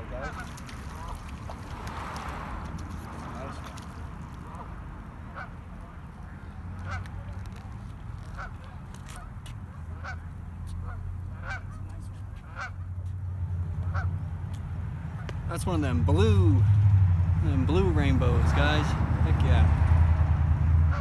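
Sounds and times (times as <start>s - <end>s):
waterfowl calling: 0.1s - 2.1s, 3.0s - 5.6s, 6.8s - 7.1s, 8.2s - 13.0s, 13.8s - 14.2s.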